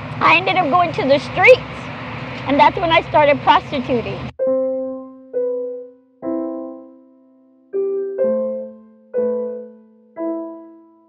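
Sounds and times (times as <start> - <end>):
soft piano chords: 4.3 - 11.0.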